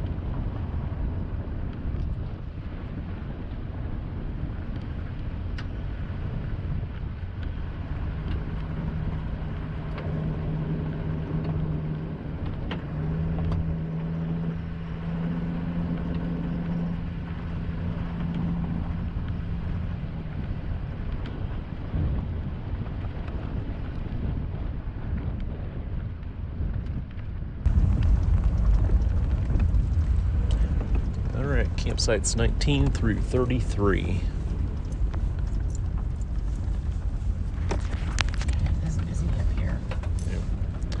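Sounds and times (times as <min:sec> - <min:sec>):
engine drone: 0:00.0 - 0:23.7, 0:27.6 - 0:41.0
tyres rumbling on gravel: 0:27.7 - 0:41.0.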